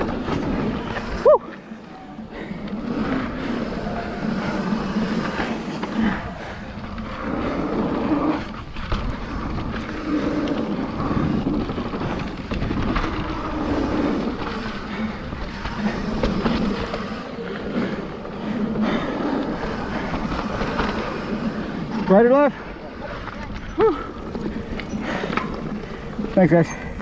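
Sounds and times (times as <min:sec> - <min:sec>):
bike rattling over bumps: 0:00.0 - 0:27.0
bike tyres rolling on dirt: 0:00.0 - 0:27.0
wind noise on microphone: 0:02.8 - 0:18.0.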